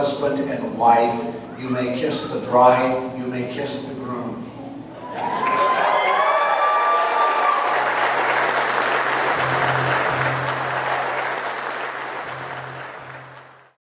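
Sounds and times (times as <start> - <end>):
guests applauding: 5.2 - 13.8
low steady musical note: 8.8 - 13.8.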